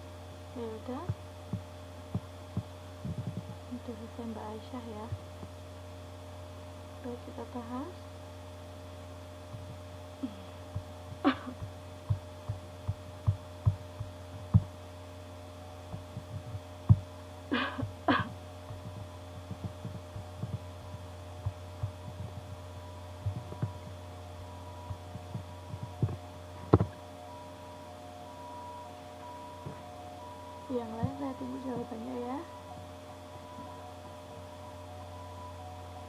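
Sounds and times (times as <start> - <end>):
steady low hum: 0.0 - 36.0
laptop keyboard typing: 18.6 - 22.6, 23.2 - 24.0, 24.8 - 27.0.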